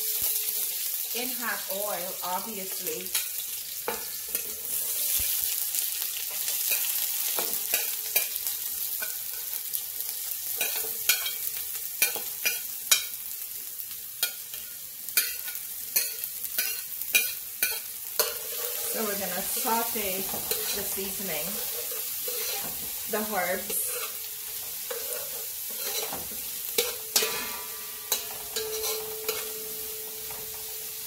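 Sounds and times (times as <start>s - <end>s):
vegetables sizzling in hot oil: 0.0s - 31.0s
metal spoon scraping and knocking: 21.6s - 22.8s, 24.9s - 27.5s, 28.1s - 29.5s.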